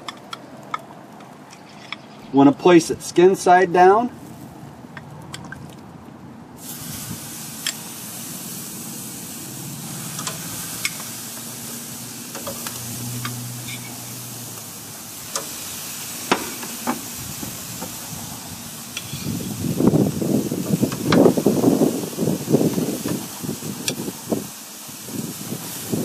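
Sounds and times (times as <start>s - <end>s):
chicken sizzling on grill: 6.6s - 26.0s
metal tongs clicking on grate: 10.1s - 11.1s.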